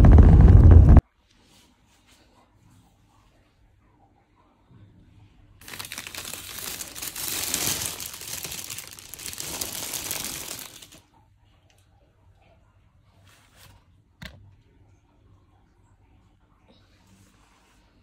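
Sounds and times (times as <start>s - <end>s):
dense crinkling rustling: 5.6s - 11.0s.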